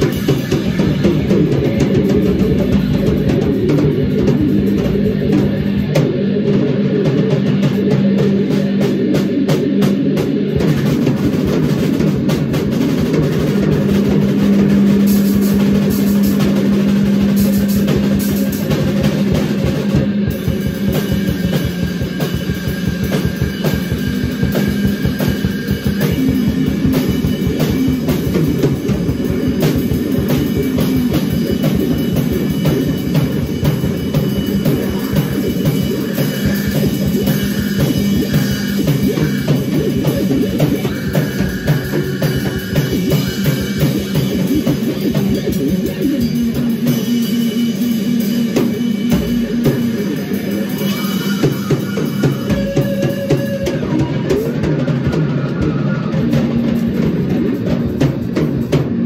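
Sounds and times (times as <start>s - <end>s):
electric bass drone: 0.0s - 55.2s
fast drum hits: 0.0s - 59.0s.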